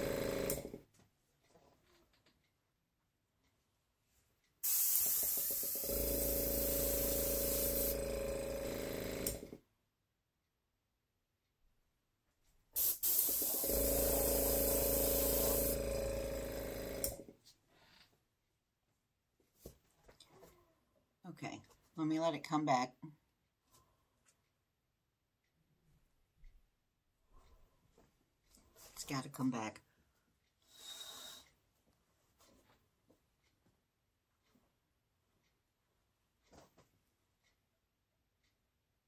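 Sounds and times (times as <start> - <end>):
air compressor motor humming: 0.0 - 0.8, 4.6 - 9.6, 12.8 - 17.3
airbrush hissing air: 4.6 - 8.0, 12.8 - 15.8.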